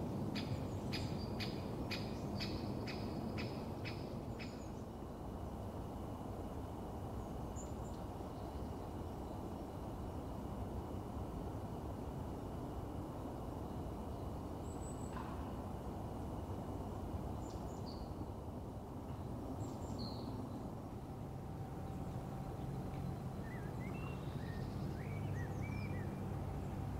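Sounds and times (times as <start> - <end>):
small birds calling: 0.0 - 5.6, 19.1 - 26.9
steady low rumble: 20.2 - 26.9
bird chirps: 21.8 - 26.2.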